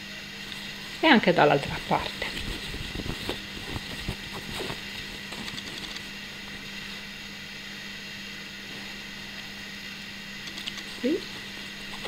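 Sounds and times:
steady low hum: 0.0 - 12.0
fabric rustling: 0.4 - 7.1, 10.8 - 12.0.

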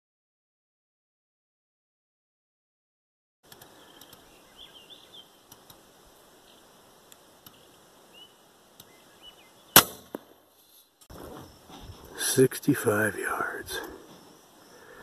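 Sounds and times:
air rifle shot crack: 9.8 - 10.4.

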